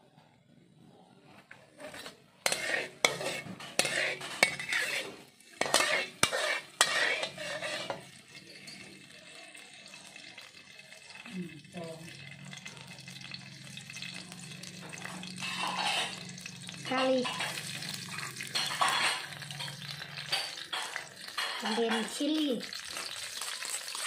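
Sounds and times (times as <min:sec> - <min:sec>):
oil sizzling: 0:01.7 - 0:24.0
metal spatula clanking in a pan: 0:01.8 - 0:09.2, 0:13.9 - 0:24.0.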